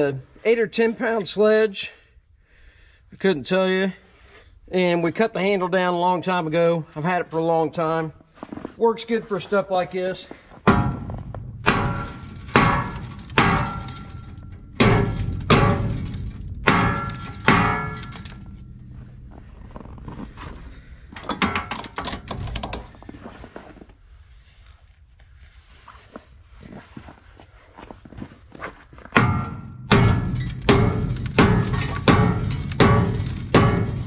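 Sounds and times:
sledgehammer striking steel frame: 0:10.6 - 0:23.0, 0:29.1 - 0:34.0
metallic clattering: 0:10.6 - 0:23.1, 0:29.2 - 0:34.0.

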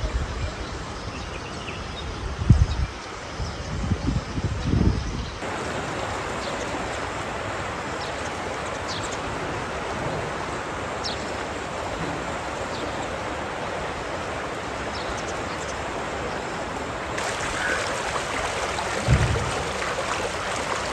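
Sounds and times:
floodwater rushing: 0:05.4 - 0:20.9
low thump: 0:18.9 - 0:20.0.

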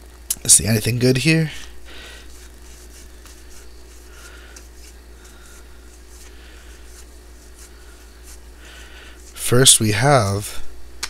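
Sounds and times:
paper cards rustling: 0:02.2 - 0:09.6.

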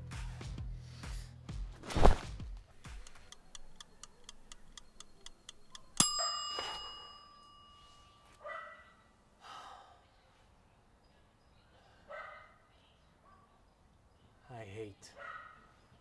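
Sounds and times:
timer ticking: 0:02.8 - 0:06.3
bell-like ding: 0:05.8 - 0:08.3
dog barking: 0:08.4 - 0:09.0, 0:12.1 - 0:12.6, 0:15.2 - 0:15.8.

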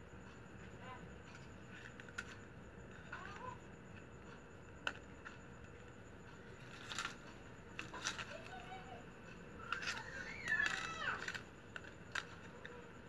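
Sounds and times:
plastic strips crinkling: 0:06.7 - 0:07.2, 0:09.7 - 0:12.7.

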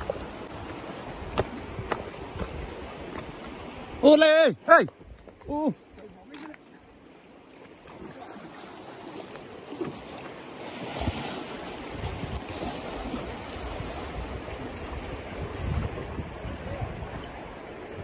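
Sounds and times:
wind buffeting microphone: 0:00.0 - 0:04.0, 0:11.8 - 0:18.0
river water rushing: 0:00.0 - 0:18.0.

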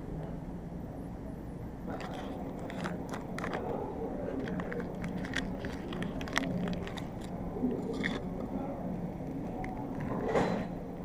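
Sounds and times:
steady low hum: 0:00.0 - 0:11.0
plastic packet crinkling: 0:01.9 - 0:08.5.

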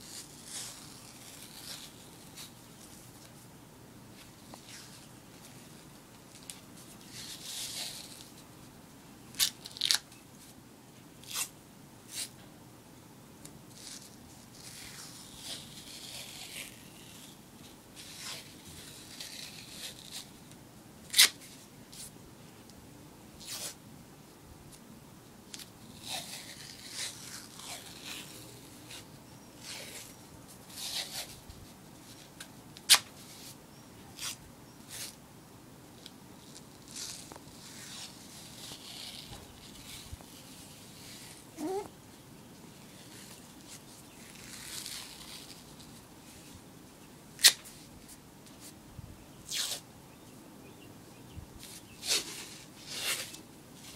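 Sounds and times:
tape ripping: 0:00.0 - 0:02.5, 0:09.3 - 0:10.2, 0:18.0 - 0:20.3, 0:21.1 - 0:21.6, 0:25.5 - 0:29.0, 0:32.2 - 0:33.5, 0:36.0 - 0:41.9, 0:43.0 - 0:46.0, 0:47.4 - 0:47.8, 0:49.5 - 0:49.8, 0:51.6 - 0:53.9.

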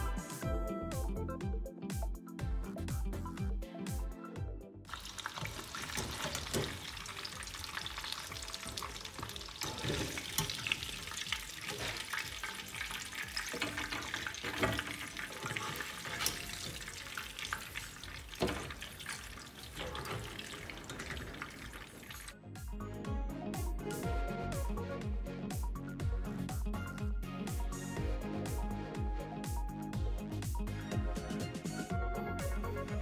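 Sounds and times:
oil sizzling: 0:04.9 - 0:22.4
skimmer clinking against pan: 0:05.0 - 0:22.3.

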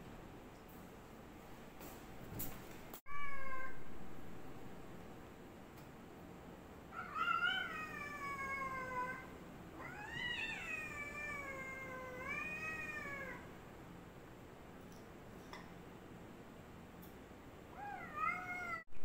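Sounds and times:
cat yowling: 0:03.1 - 0:03.8, 0:06.9 - 0:13.5, 0:17.7 - 0:18.9.

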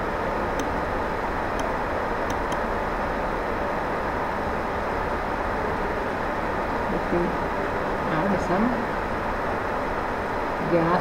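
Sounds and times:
mouse clicks: 0:02.3 - 0:02.6.

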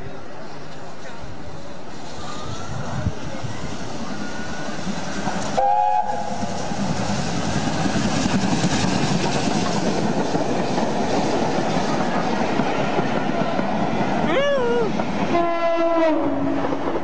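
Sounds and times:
steam train rushing past: 0:00.0 - 0:17.0
steam locomotive whistle: 0:04.1 - 0:06.8, 0:15.3 - 0:16.6.

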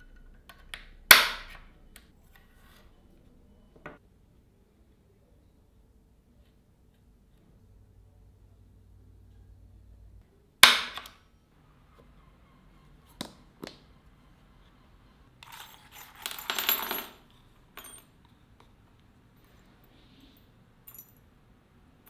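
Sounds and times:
metallic clink: 0:15.4 - 0:18.2, 0:20.8 - 0:21.3.

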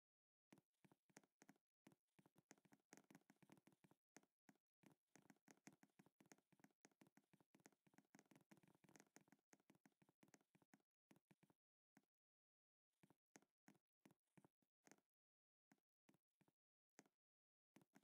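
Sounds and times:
faint keyboard typing: 0:00.5 - 0:12.1.

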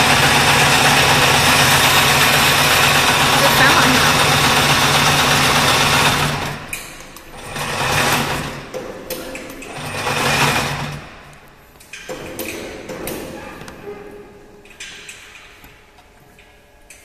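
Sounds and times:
braiding machine whirring: 0:00.0 - 0:11.4.

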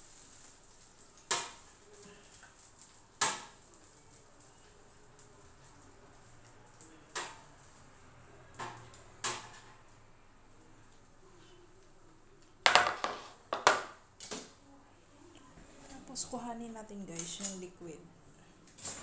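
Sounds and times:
metal tongs clanking on tray: 0:17.2 - 0:17.7.

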